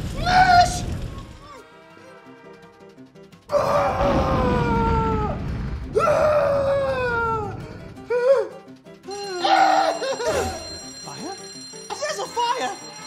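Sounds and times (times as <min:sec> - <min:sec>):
music: 0:01.4 - 0:13.0
falling wailing tones: 0:03.5 - 0:08.5
cartoon explosion boom: 0:03.8 - 0:08.0.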